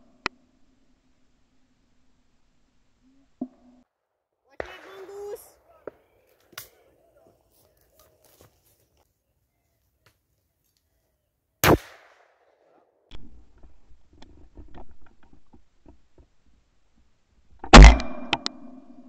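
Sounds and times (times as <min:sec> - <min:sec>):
shotgun shots: 0:04.6 - 0:06.8, 0:11.6 - 0:12.6.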